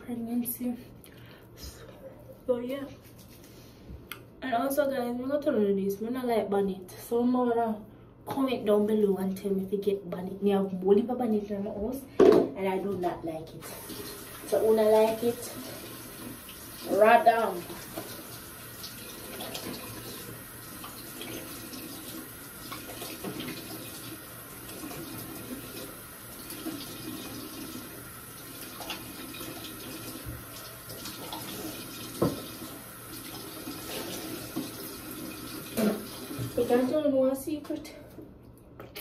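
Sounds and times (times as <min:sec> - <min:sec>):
face washing splashes: 0:17.6 - 0:36.6
tap running into sink: 0:22.6 - 0:23.9, 0:28.8 - 0:32.7.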